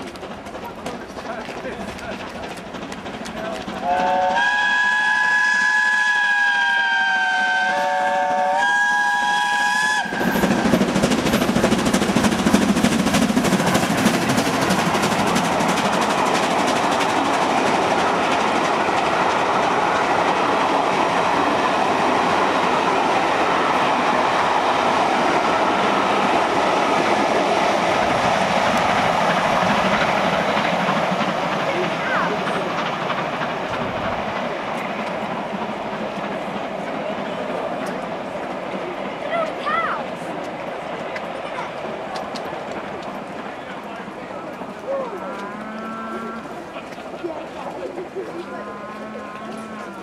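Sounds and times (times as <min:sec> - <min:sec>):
wheels clattering on rails: 0:00.0 - 0:06.8, 0:08.6 - 0:50.0
steam engine working past: 0:00.0 - 0:50.0
steam locomotive whistle: 0:03.8 - 0:10.7
coaches rumbling by: 0:10.0 - 0:50.0.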